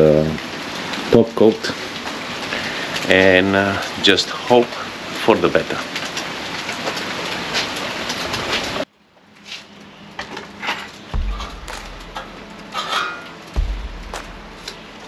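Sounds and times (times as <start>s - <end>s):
rain pattering: 0.0s - 15.0s
low music beats: 11.1s - 15.0s.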